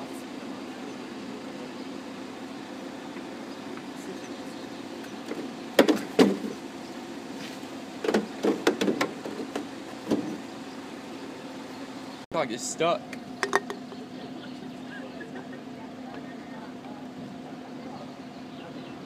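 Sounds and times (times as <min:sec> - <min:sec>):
bridge machinery humming: 0:00.0 - 0:19.0
sharp knocks: 0:08.0 - 0:10.4.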